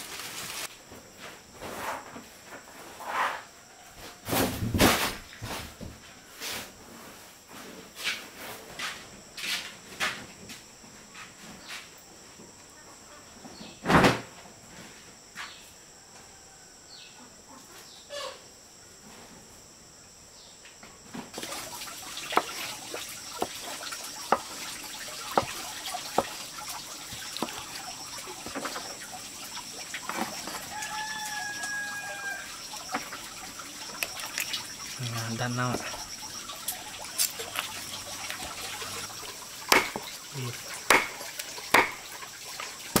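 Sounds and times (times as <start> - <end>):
high insect hiss: 0.0 - 43.0
cleaver chopping on wooden block: 25.3 - 26.4, 27.4 - 27.6, 39.7 - 40.1, 40.9 - 42.0
chicken calling: 30.0 - 33.0.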